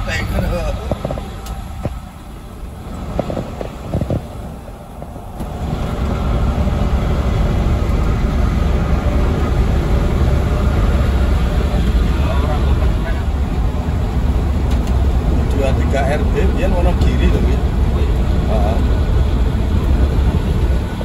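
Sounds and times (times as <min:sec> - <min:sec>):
coach engine and road rumble: 0:00.0 - 0:21.0.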